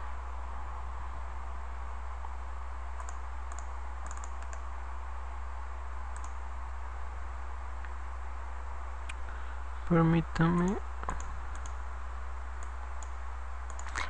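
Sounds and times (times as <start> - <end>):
low hum and hiss: 0.0 - 14.0
computer mouse clicking: 3.0 - 4.7, 6.2 - 6.4, 10.5 - 11.8, 12.6 - 14.0.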